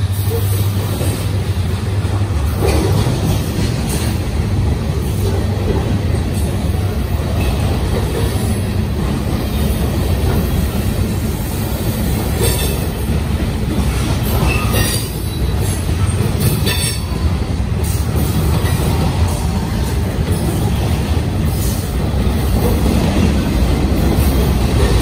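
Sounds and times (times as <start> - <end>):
train wheels rumbling on rails: 0.0 - 25.0.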